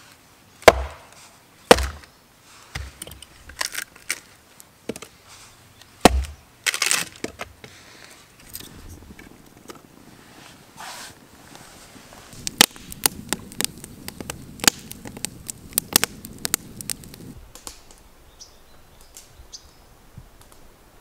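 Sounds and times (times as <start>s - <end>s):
firewood knocking: 0.6s - 2.1s, 2.7s - 3.7s, 6.0s - 6.4s
wood clattering: 1.7s - 2.1s.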